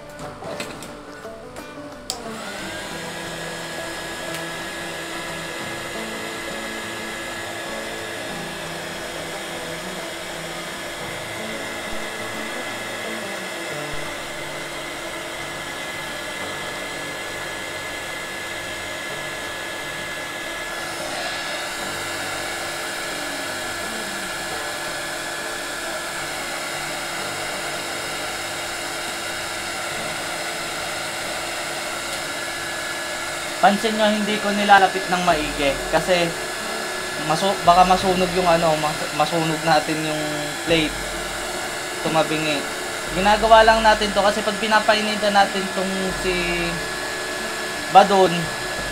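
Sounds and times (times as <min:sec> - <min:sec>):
heat gun blowing: 0:02.1 - 0:48.9.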